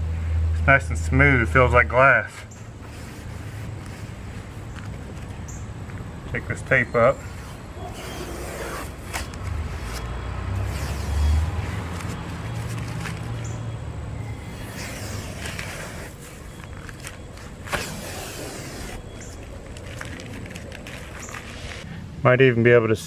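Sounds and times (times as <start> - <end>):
tape peeling off a roof: 2.3 - 5.6, 6.8 - 21.9.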